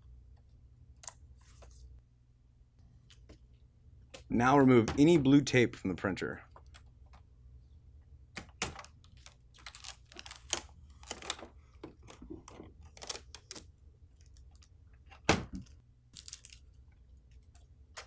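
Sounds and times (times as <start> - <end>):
packing tape crackling: 8.4 - 14.7, 15.6 - 18.0.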